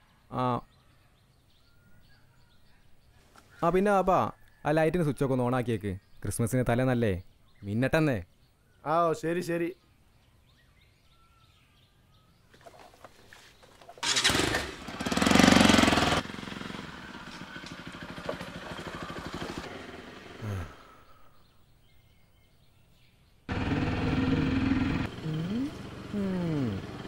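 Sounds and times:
motorcycle engine revving: 14.0s - 21.0s, 23.5s - 27.0s.

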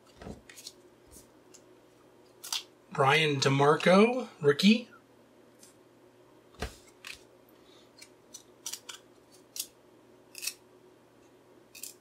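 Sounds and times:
trading cards snapping apart: 8.3s - 9.7s.

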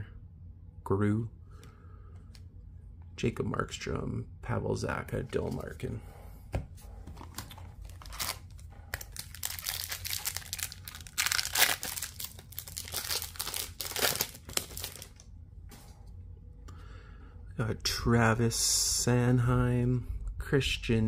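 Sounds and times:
wrapper crinkling and tearing: 7.4s - 15.3s.

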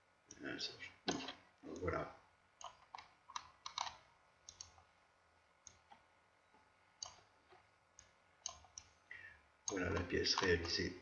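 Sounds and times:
computer mouse clicks: 2.6s - 4.9s, 5.6s - 9.0s, 9.7s - 10.9s.

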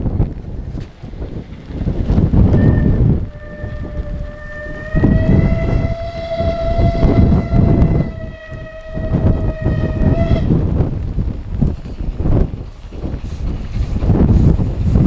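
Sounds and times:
wind buffeting microphone: 0.0s - 15.0s
steam locomotive whistle: 2.5s - 10.7s.

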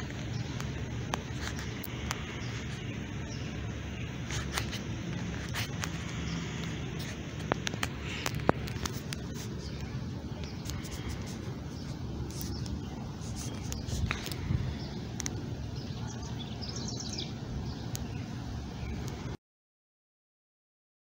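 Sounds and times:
steady low rumble: 0.0s - 19.4s
phone microphone handling noise: 4.2s - 15.4s.

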